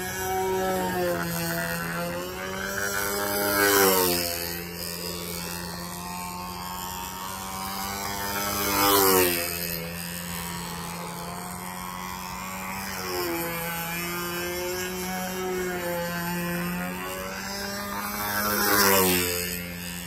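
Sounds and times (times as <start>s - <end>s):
model airplane motor droning: 0.0s - 20.0s.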